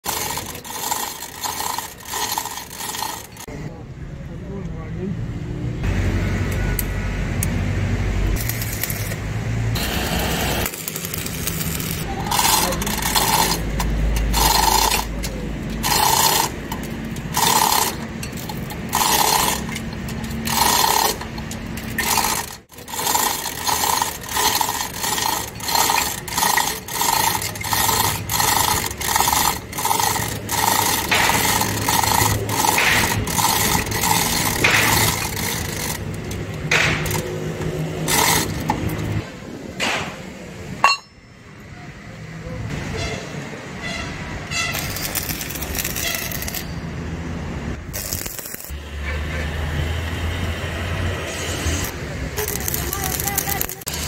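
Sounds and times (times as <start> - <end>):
metal ratcheting: 0.0 - 3.5, 8.3 - 9.2, 10.6 - 39.3, 44.5 - 46.8, 47.8 - 48.8, 51.8 - 54.0.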